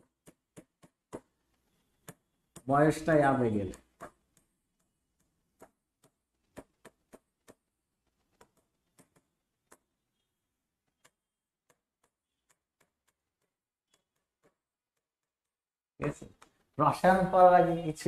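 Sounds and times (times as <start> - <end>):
pen tip tapping on board: 0.0 - 2.7, 3.7 - 9.9.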